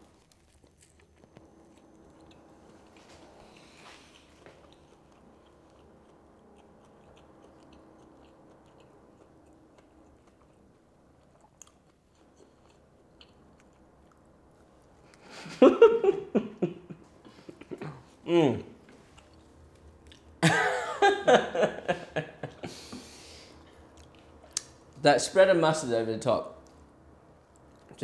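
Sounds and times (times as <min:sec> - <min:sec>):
person chewing: 0:00.0 - 0:15.4, 0:18.8 - 0:20.4, 0:22.4 - 0:24.8
person humming: 0:17.5 - 0:18.7.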